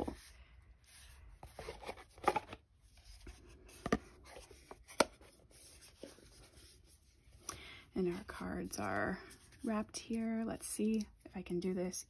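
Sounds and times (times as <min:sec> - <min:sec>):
cardboard box and cards rustling: 0:00.0 - 0:00.4, 0:01.0 - 0:09.8.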